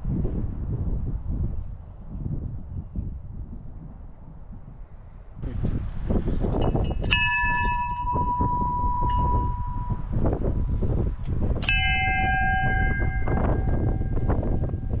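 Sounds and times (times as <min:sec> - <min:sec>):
wind buffeting microphone: 0:00.0 - 0:15.0
bell ringing: 0:06.9 - 0:10.2, 0:11.7 - 0:15.0.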